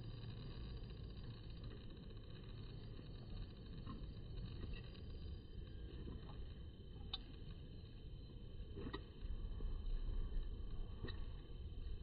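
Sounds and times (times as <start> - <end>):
low background rumble: 0.0 - 12.0.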